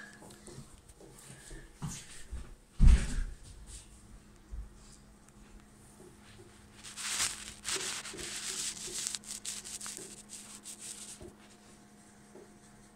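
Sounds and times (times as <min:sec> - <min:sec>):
faint steady hum: 0:00.0 - 0:12.9
scratchy handling rasps: 0:06.8 - 0:11.4.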